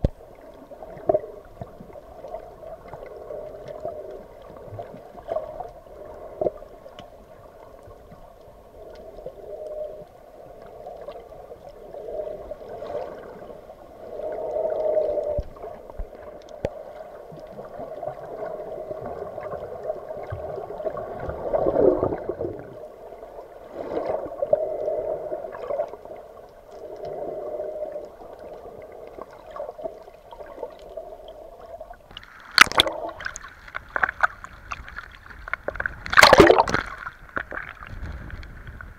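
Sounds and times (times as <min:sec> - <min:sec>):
muffled underwater sloshing: 0:00.0 - 0:38.9
loud water splash: 0:36.0 - 0:37.1.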